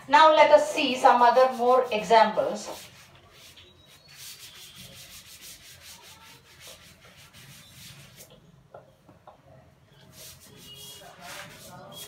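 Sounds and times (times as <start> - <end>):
cloth rubbing chalk off blackboard: 0.8 - 8.4, 10.0 - 12.0.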